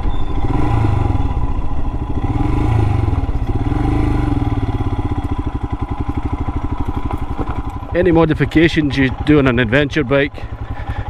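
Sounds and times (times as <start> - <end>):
motorcycle engine running: 0.0 - 11.0
tyres crunching over gravel: 6.2 - 10.2.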